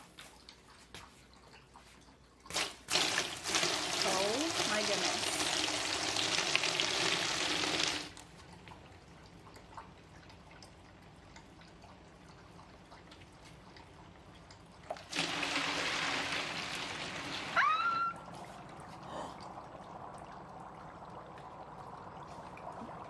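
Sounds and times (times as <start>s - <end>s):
faint bubbling: 0.4s - 23.0s
water poured onto dry ice: 2.5s - 8.2s.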